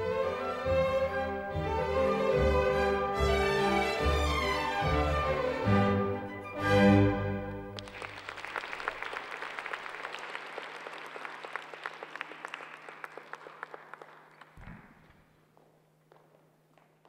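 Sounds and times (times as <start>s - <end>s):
audience applauding: 7.8s - 15.1s.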